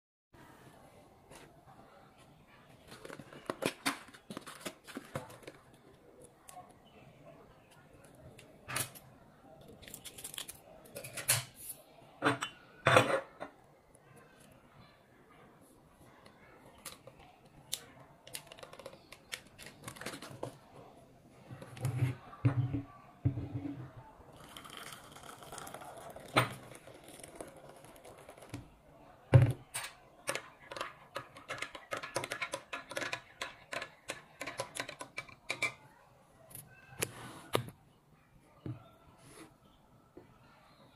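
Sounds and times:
cup and saucer knocking on table: 22.4 - 23.8.

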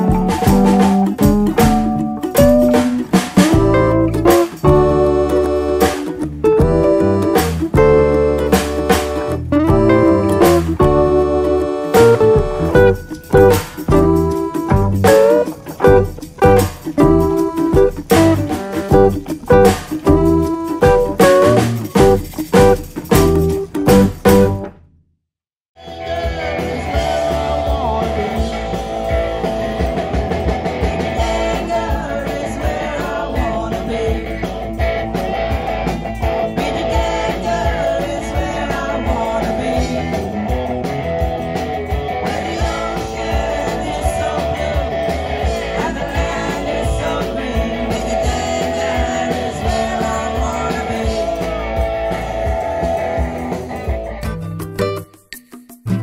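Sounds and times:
electric guitar: 0.0 - 24.7, 25.8 - 56.0
drums: 0.0 - 24.8, 25.8 - 56.0
bass guitar: 0.0 - 24.9, 25.8 - 56.0
several voices singing: 30.8 - 34.9, 36.5 - 40.5, 42.2 - 53.6.

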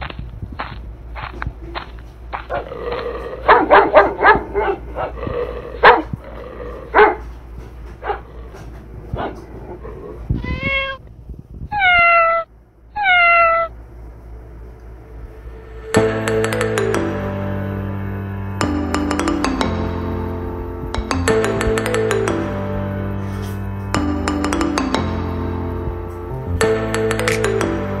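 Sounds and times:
cat meowing: 10.3 - 11.1, 11.7 - 13.7.

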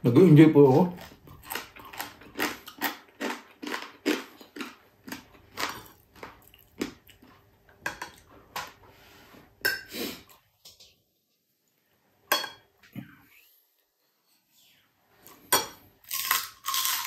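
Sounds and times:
mouth chewing crunchy food: 0.7 - 7.5, 16.1 - 17.0.

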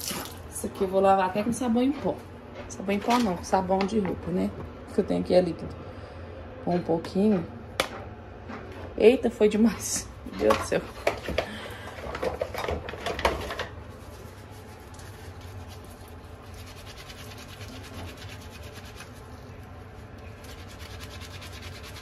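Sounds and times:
wet rubbing and scratching of filter: 13.4 - 22.0.

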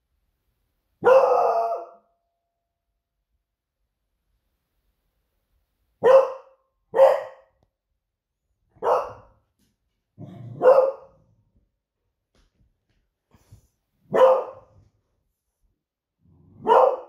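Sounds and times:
dog barking: 1.0 - 2.1, 6.0 - 7.6, 8.8 - 9.4, 10.3 - 11.2, 14.1 - 14.8, 16.5 - 17.0.

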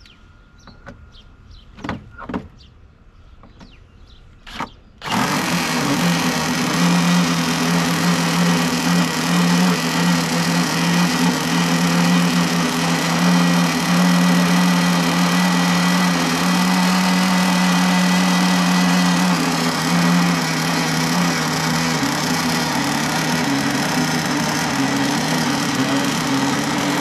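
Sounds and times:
model boat engine buzzing: 5.0 - 27.0.

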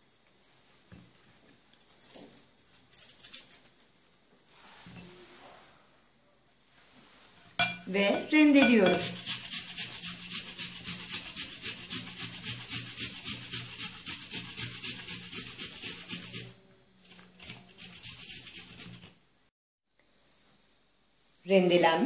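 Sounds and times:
apple grated on metal grater: 8.3 - 19.2.

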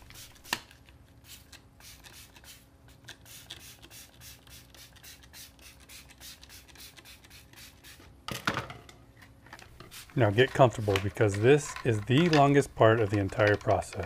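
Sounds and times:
spray bottle squirting: 0.0 - 8.1, 9.8 - 11.5.

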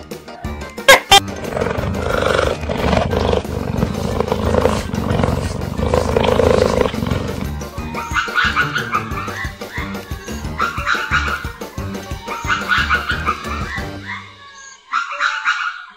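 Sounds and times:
background music: 0.0 - 15.9
roaring animal sound: 1.2 - 7.7.

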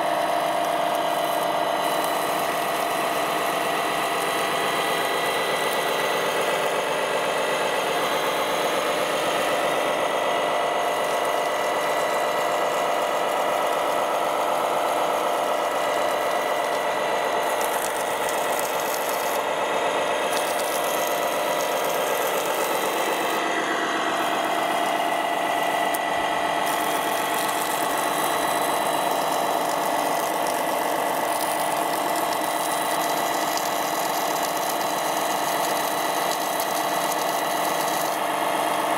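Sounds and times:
water pump whining: 0.0 - 38.9
water jet spraying: 15.0 - 19.5, 20.1 - 23.5, 24.1 - 38.3.

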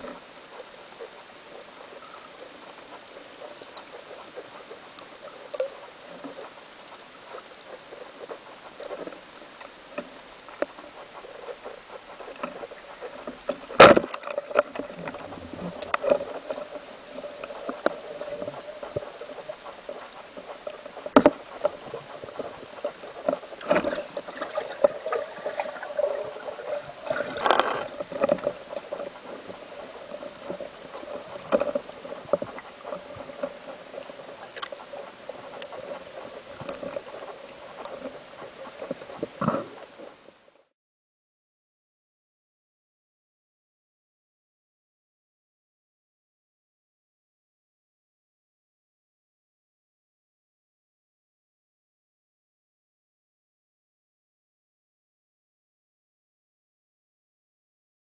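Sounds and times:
steady underwater hum: 0.0 - 40.7
underwater clicks and knocks: 8.8 - 39.9.

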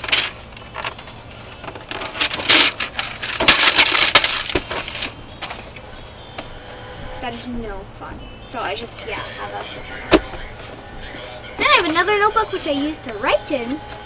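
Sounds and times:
paper rustling: 0.0 - 5.8.

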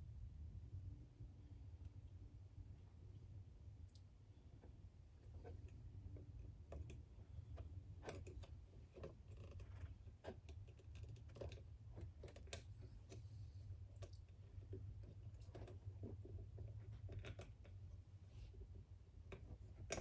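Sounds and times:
steady low hum: 0.0 - 20.0
small metallic clicks and scrapes: 5.2 - 17.8, 19.3 - 20.0.

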